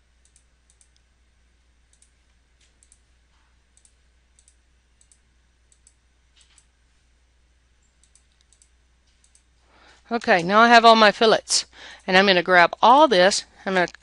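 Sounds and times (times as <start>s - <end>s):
low steady hum: 0.0s - 14.0s
computer mouse clicks: 0.2s - 1.1s, 1.9s - 3.1s, 3.8s - 6.7s, 7.8s - 9.5s.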